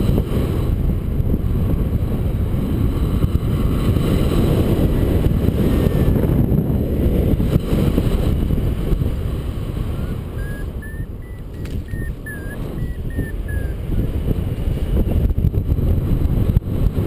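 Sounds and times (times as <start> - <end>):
wind rushing over microphone: 0.0 - 17.0
variometer beeping: 5.0 - 6.3, 10.0 - 13.9.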